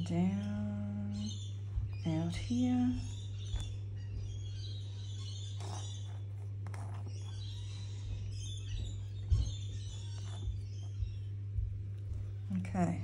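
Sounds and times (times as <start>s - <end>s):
faint birds chirping: 0.0s - 13.0s
steady low hum: 0.0s - 13.0s
soft paint skin rustles: 4.9s - 12.6s.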